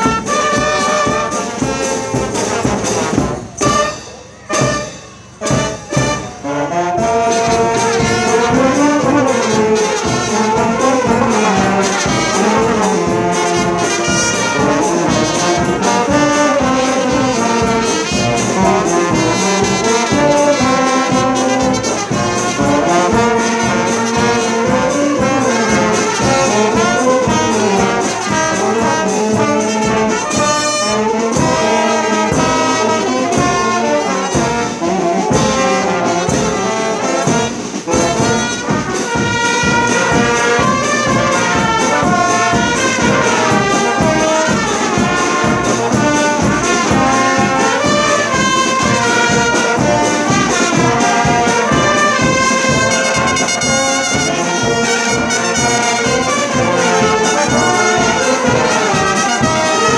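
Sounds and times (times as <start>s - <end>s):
brass band playing lively tune: 0.0s - 59.9s.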